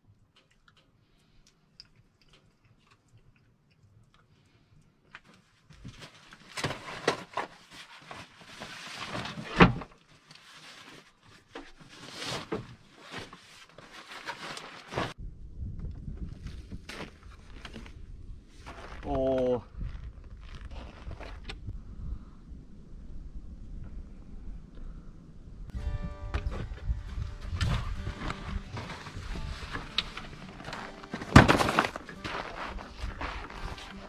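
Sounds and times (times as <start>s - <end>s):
backpack rustling and scraping: 10.4s - 15.2s, 26.5s - 34.0s.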